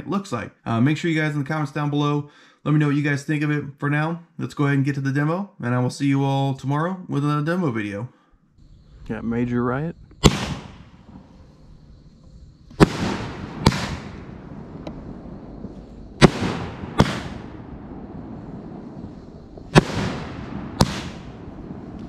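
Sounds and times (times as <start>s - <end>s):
firework hiss: 10.1s - 22.0s
firework shells banging: 12.7s - 22.0s.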